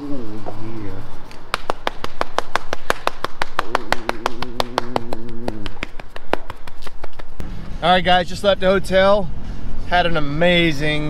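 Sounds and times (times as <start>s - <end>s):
wavering voice sound: 3.6s - 6.2s.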